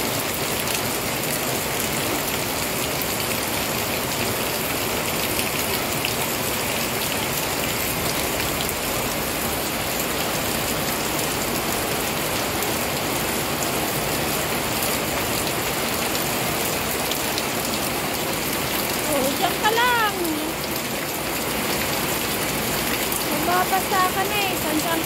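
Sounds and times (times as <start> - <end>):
heavy rain on concrete: 0.0 - 25.0.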